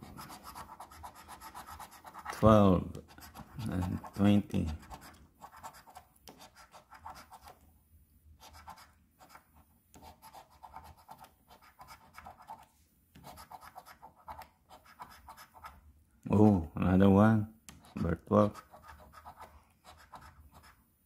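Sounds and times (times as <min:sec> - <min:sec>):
coin scraping scratch card: 0:13.2 - 0:15.8, 0:17.8 - 0:20.8.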